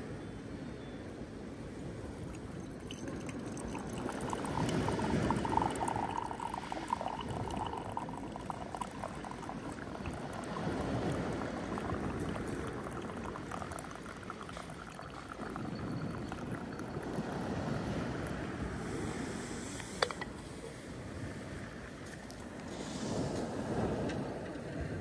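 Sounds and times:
drink trickling into mug: 0:01.7 - 0:18.5.

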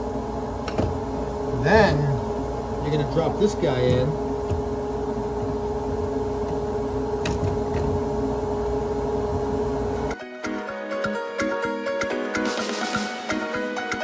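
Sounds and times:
music: 0:10.1 - 0:14.0.

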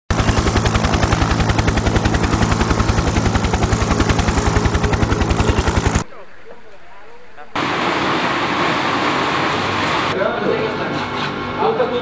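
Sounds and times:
rapid mechanical pulsing: 0:00.1 - 0:06.1.

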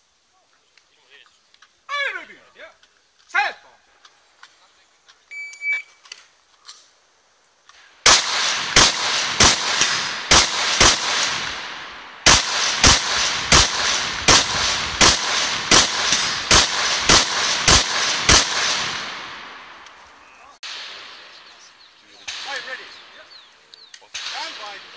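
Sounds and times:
rifle shots with ringing echo: 0:08.0 - 0:19.9, 0:20.6 - 0:23.5, 0:24.1 - 0:24.9.

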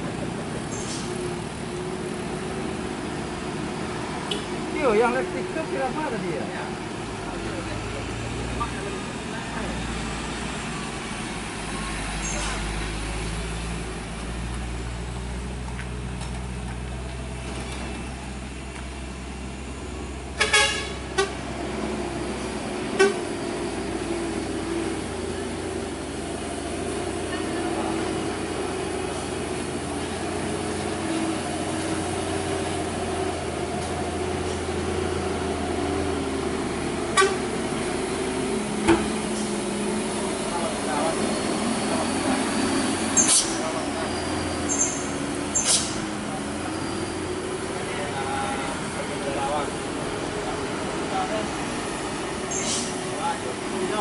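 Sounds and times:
diesel trucks running slowly: 0:00.0 - 0:54.0
vehicle horn toots: 0:20.4 - 0:21.4, 0:22.9 - 0:23.3, 0:37.1 - 0:37.5.

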